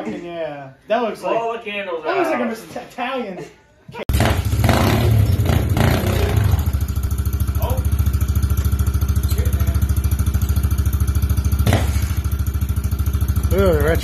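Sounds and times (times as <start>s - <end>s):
small motorbike engine idling: 4.1s - 14.0s.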